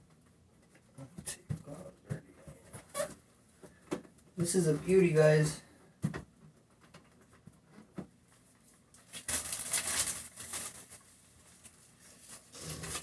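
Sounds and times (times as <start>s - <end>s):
plastic wrap crinkling: 8.9s - 13.0s.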